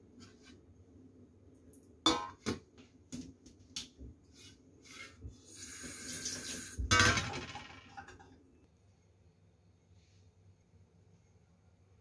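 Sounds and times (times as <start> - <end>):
kitchen tap running into sink: 5.5 - 6.9.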